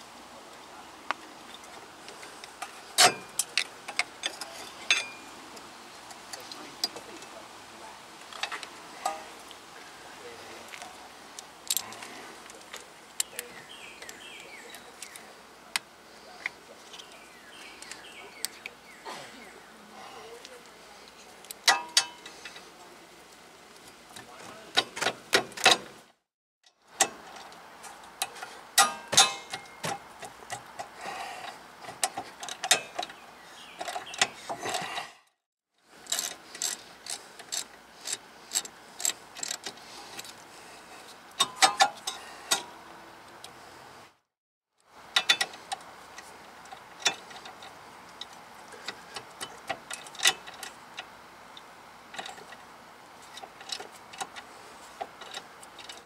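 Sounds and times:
ratchet clicks: 0:36.0 - 0:40.3.

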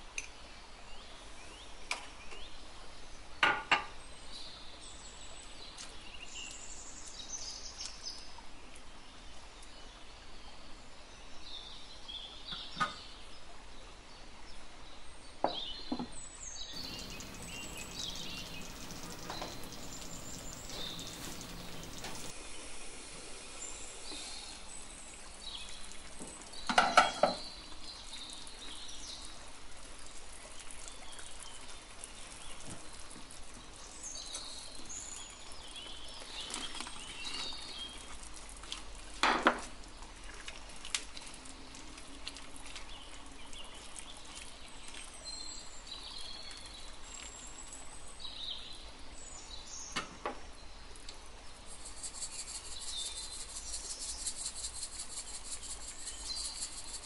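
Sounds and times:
food sizzling in a frying pan: 0:16.8 - 0:24.3.

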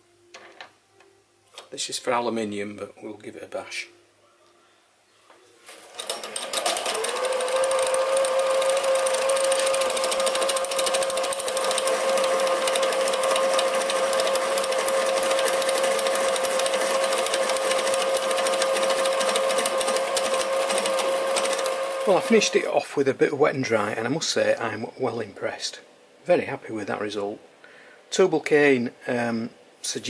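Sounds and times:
lathe tool chattering ring: 0:06.0 - 0:22.5.

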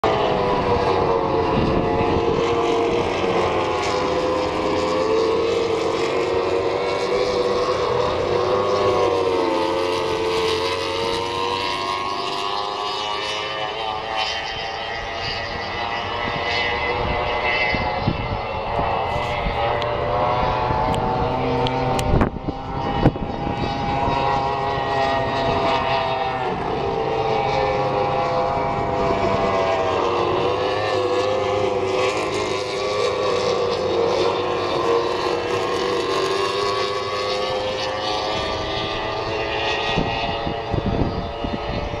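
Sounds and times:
racing boat engines whining: 0:00.0 - 0:42.0.

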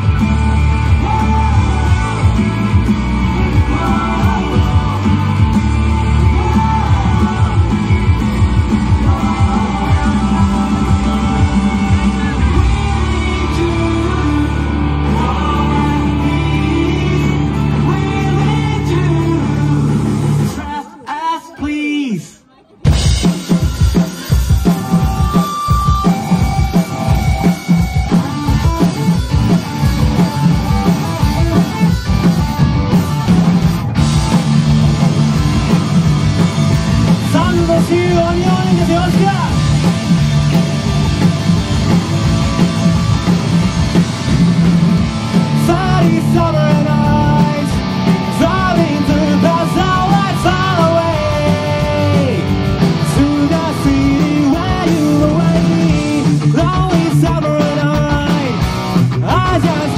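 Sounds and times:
pounding drum kit: 0:00.0 - 0:20.9, 0:22.8 - 0:59.9
rock band playing live: 0:00.0 - 0:21.6, 0:22.4 - 0:59.9.

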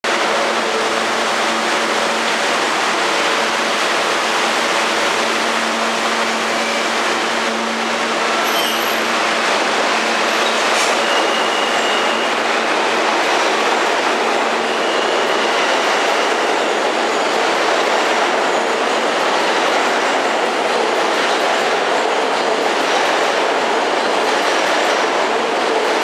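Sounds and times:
subway train rumble and hiss: 0:00.0 - 0:26.0.

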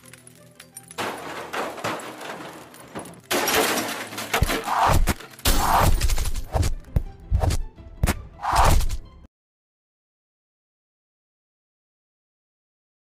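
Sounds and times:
shattering: 0:00.0 - 0:06.7.

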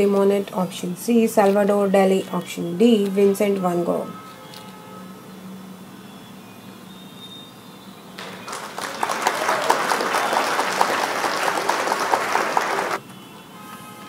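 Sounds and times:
recorded applause: 0:08.2 - 0:13.0.

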